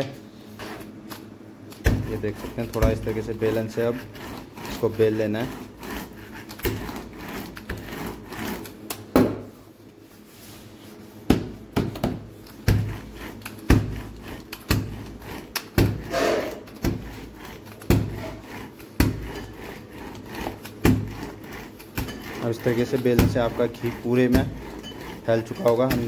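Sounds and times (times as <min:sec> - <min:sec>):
rolling pin rubbing over dough: 0:00.0 - 0:26.0
rolling pin knocking on table: 0:09.1 - 0:09.5, 0:11.3 - 0:13.0.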